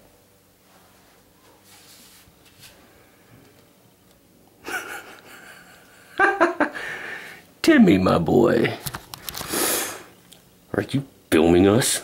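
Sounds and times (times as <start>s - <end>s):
person gasping: 6.7s - 7.4s.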